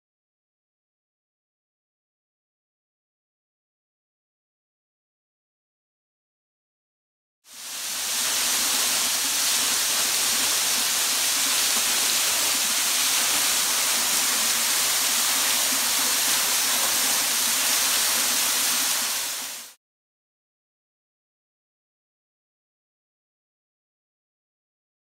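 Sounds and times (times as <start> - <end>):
waterfall pouring onto rocks: 7.5 - 19.8.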